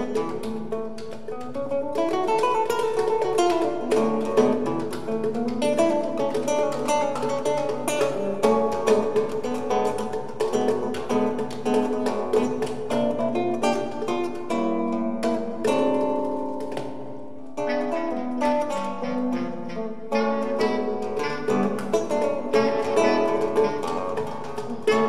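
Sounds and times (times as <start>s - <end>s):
acoustic guitar plucked notes: 0.0s - 25.0s
hand drum percussion: 0.0s - 25.0s
bass clarinet: 17.6s - 24.3s.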